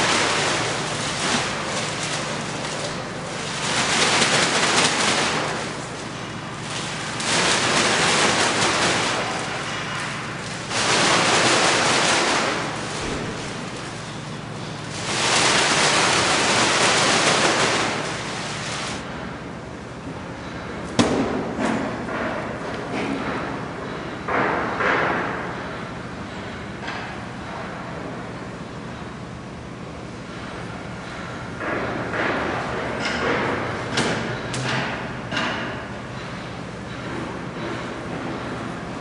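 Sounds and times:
plastic sack crinkling: 0.0s - 19.0s.

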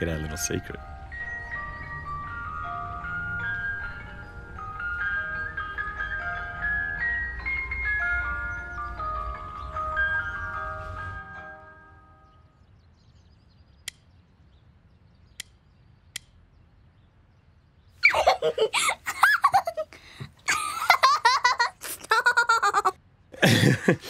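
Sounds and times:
faint clicks: 13.8s - 14.1s, 15.3s - 16.4s
girl giggling and laughing: 18.0s - 24.0s.

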